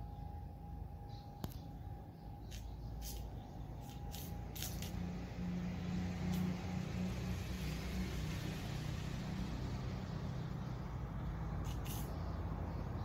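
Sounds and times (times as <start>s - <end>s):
faint hum: 0.0s - 7.2s.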